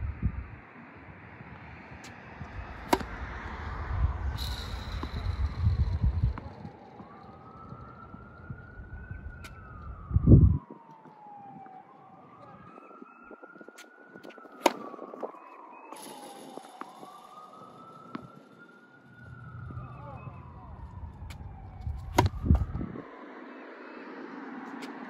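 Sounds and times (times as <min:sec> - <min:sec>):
emergency siren wailing: 0:00.0 - 0:25.0
low thump: 0:21.3 - 0:22.9.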